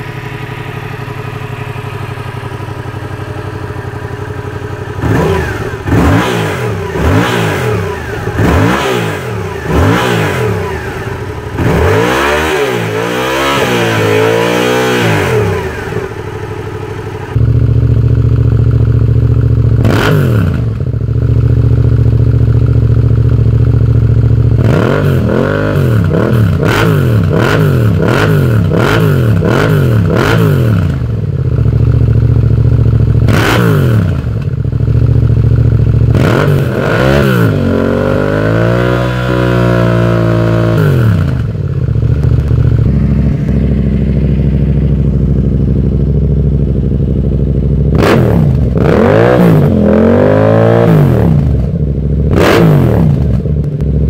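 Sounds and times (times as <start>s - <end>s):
motorcycle engine idling and revving: 0.0s - 54.0s.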